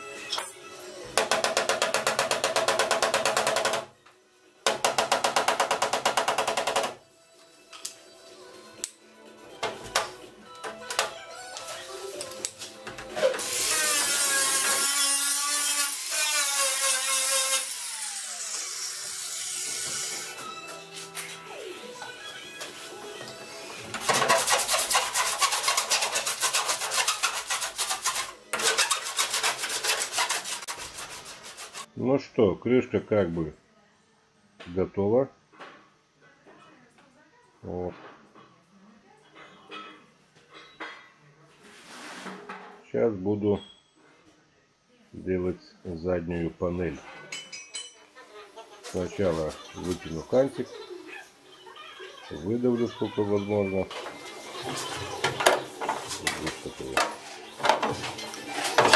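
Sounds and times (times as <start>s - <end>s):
sanding block rubbing metal panel: 24.0s - 31.9s.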